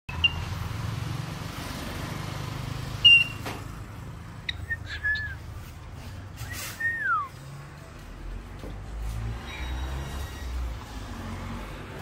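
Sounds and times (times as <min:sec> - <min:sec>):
cockatiel whistling and chirping: 0:04.5 - 0:05.4.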